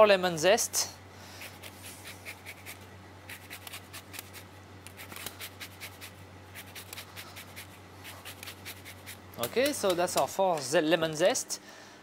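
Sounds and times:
low steady hum: 0:00.0 - 0:12.0
zester scraping lemon peel: 0:01.4 - 0:10.3.

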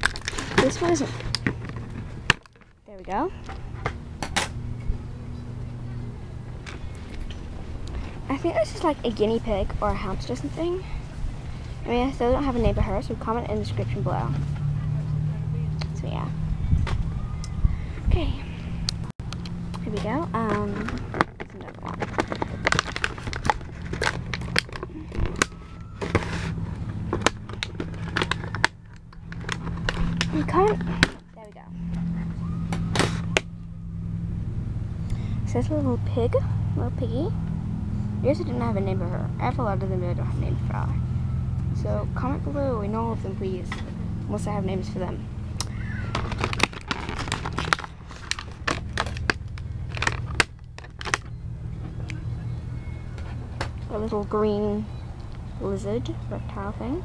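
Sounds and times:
toy packaging crinkling and clicking: 0:00.0 - 0:02.8, 0:20.5 - 0:31.2, 0:45.6 - 0:51.3
steady low hum: 0:00.0 - 0:57.0
short tearing rustle: 0:46.1 - 0:51.2.

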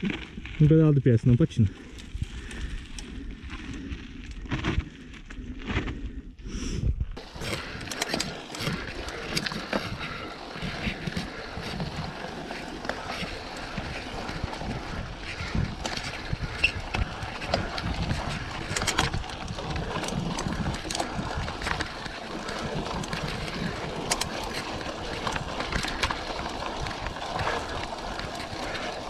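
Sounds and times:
bicycle clicks and rattles: 0:01.7 - 0:05.9, 0:07.2 - 0:29.0
wind noise on microphone: 0:13.1 - 0:28.4.

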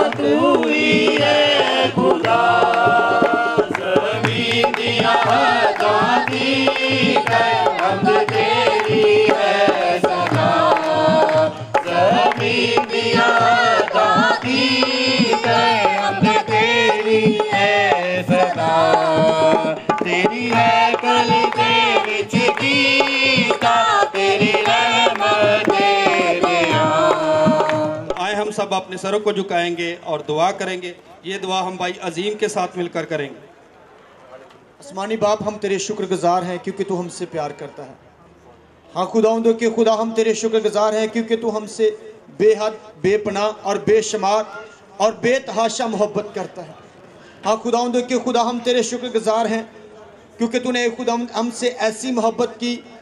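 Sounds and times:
man singing into a microphone: 0:00.0 - 0:28.2
hand drum beat: 0:00.0 - 0:28.3.

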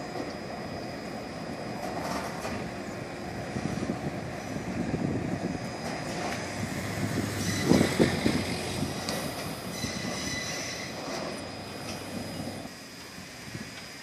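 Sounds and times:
diesel locomotive pulling away: 0:00.0 - 0:14.0
wind on microphone: 0:03.3 - 0:10.4.

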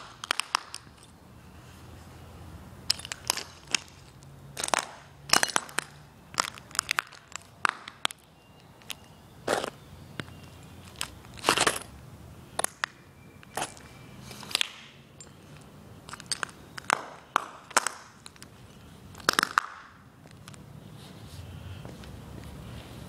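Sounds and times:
shoes crunching ceramic shards: 0:02.9 - 0:18.4.

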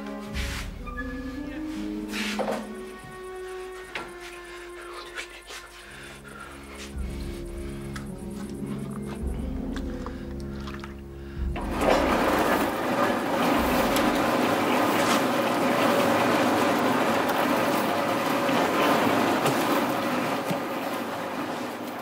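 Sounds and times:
cement mixer churning: 0:09.7 - 0:22.0.

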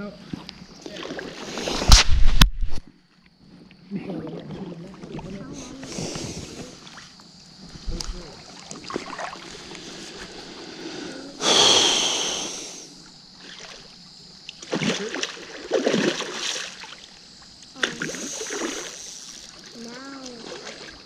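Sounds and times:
loud water splash: 0:14.7 - 0:17.0
voices calling out: 0:17.6 - 0:21.0.

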